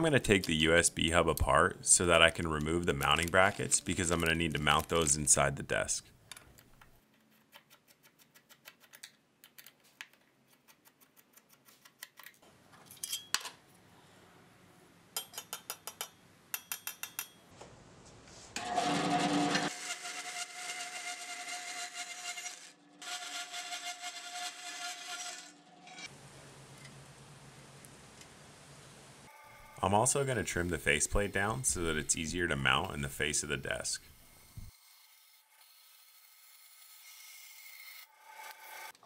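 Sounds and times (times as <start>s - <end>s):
bandsaw cutting metal: 18.6s - 26.1s.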